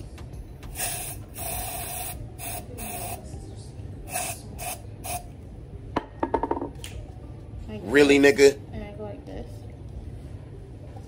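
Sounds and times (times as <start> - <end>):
aerosol spray can hissing: 0.7 - 3.2, 4.1 - 5.2.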